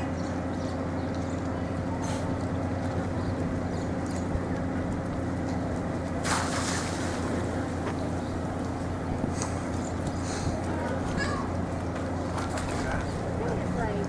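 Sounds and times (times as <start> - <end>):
low engine hum: 0.0 - 14.0
bird splashing into water: 6.2 - 7.8.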